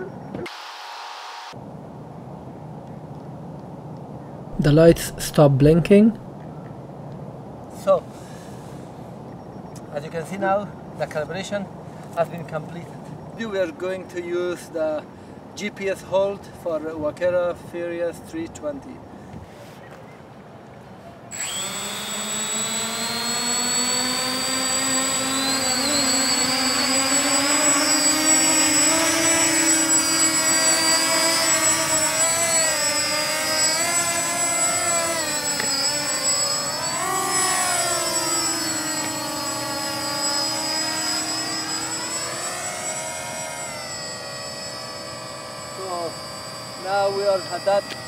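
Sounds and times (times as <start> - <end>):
quadcopter motors whining: 0.0 - 1.6, 21.3 - 48.0.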